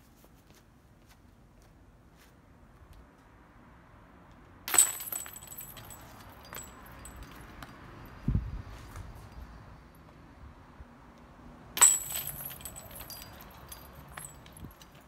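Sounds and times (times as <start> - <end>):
metal chains jangling: 4.7 - 7.9, 11.8 - 15.0.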